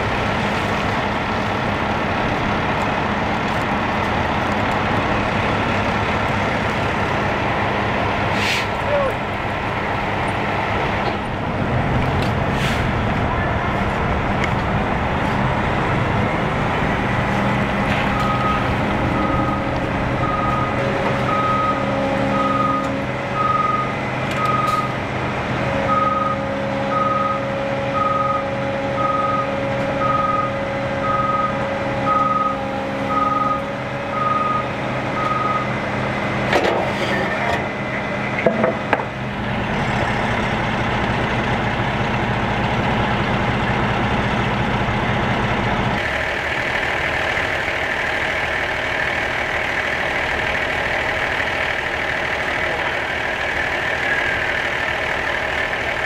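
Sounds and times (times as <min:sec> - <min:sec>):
truck engine running: 0:00.0 - 0:56.0
truck reverse alarm beeping: 0:17.4 - 0:25.0, 0:25.7 - 0:36.1.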